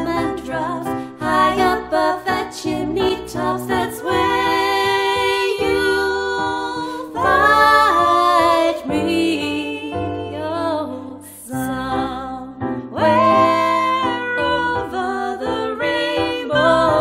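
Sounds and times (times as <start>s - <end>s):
two women singing: 0.0s - 17.0s.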